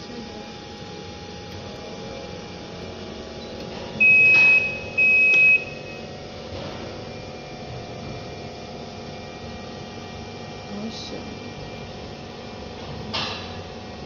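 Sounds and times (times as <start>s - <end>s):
electrical hum: 0.0s - 14.0s
high electronic beeps: 4.0s - 6.0s.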